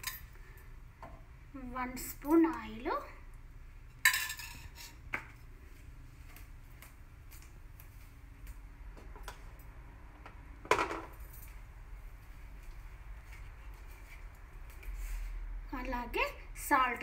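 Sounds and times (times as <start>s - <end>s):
steel utensils clinking on pot: 4.0s - 5.0s.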